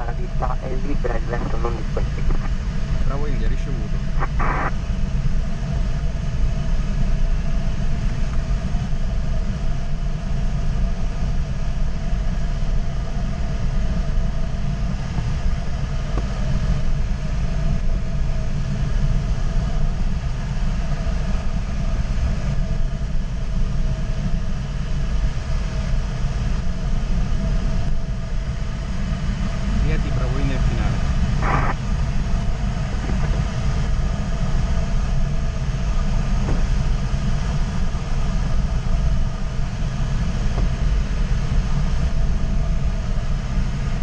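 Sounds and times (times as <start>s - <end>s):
faint steady tone: 0.0s - 5.0s
airflow rushing in glider cockpit: 0.0s - 44.0s.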